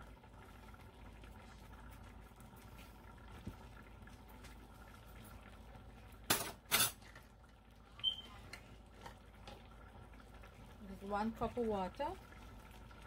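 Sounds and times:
kitchen things clattering: 0:06.3 - 0:07.1.

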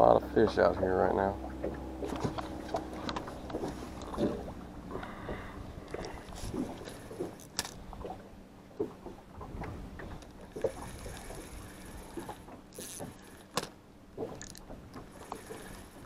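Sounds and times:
wind and water noise: 0:00.0 - 0:16.0
knocks and clicks from rod handling: 0:01.4 - 0:08.2, 0:12.2 - 0:15.6
fishing reel cranking: 0:05.9 - 0:07.8, 0:10.2 - 0:13.7, 0:14.4 - 0:16.0.

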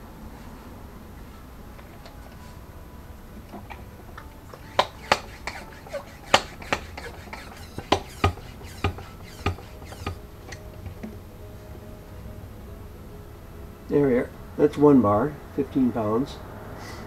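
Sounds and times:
hand pump clicking and knocking: 0:04.5 - 0:11.1.

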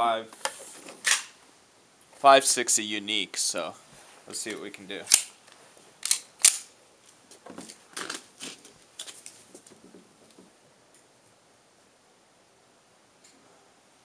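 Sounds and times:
pistol metallic clacks: 0:05.1 - 0:05.4, 0:06.0 - 0:06.7.

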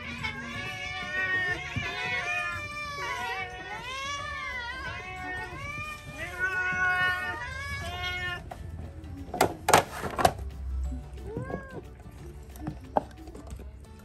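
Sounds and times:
cats meowing: 0:00.0 - 0:08.7, 0:11.0 - 0:13.4.

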